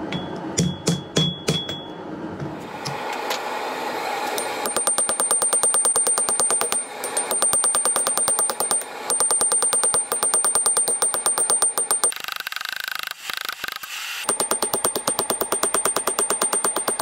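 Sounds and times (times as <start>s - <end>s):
hammer blows ringing on anvil: 0.0s - 2.0s, 4.4s - 12.1s, 14.3s - 17.0s.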